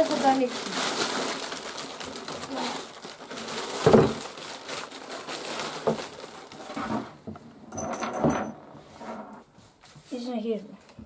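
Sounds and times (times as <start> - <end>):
plastic wrapping crinkling: 0.0 - 7.2.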